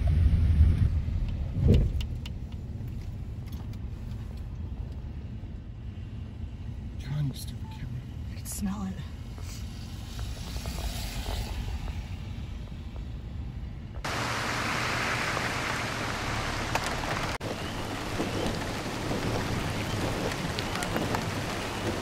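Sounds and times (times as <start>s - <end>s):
low rumble: 0.0s - 7.0s, 9.0s - 22.0s
heavy rain hissing: 14.1s - 22.0s.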